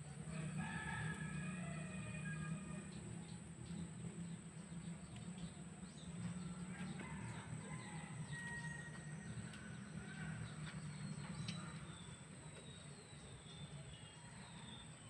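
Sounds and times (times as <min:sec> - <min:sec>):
small birds chirping: 0:02.8 - 0:15.0.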